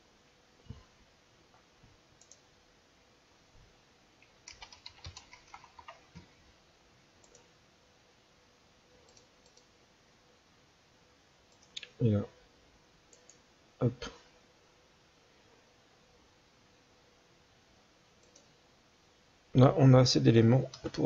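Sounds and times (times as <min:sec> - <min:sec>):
mouse clicks: 0:02.2 - 0:02.4, 0:07.2 - 0:07.5, 0:09.1 - 0:09.7, 0:13.1 - 0:13.4, 0:18.2 - 0:18.5
typing on keyboard: 0:04.2 - 0:06.3.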